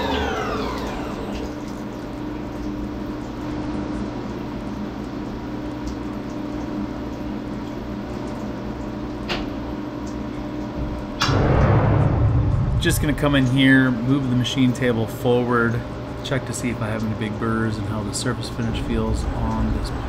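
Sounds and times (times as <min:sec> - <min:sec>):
spindle whine winding down: 0:00.0 - 0:01.7
machine humming: 0:00.0 - 0:04.8, 0:10.0 - 0:20.0
coolant trickling: 0:00.0 - 0:20.0.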